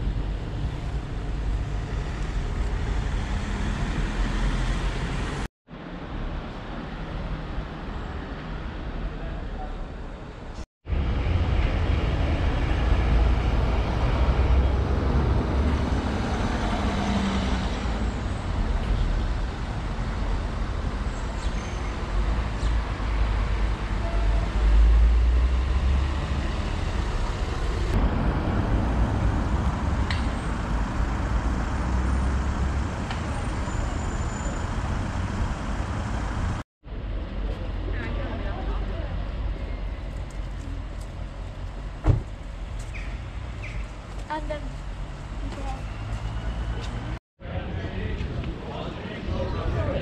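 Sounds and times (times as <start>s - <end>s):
deep traffic rumble: 0.0s - 50.0s
cars driving past: 10.9s - 36.6s.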